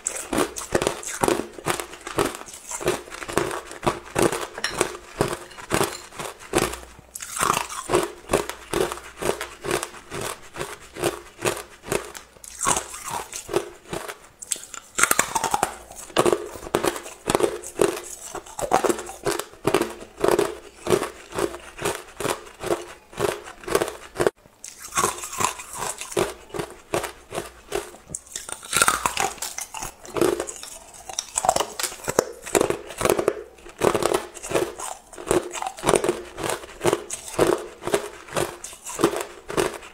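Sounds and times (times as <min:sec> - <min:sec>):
person chewing ice: 0:00.0 - 0:39.9.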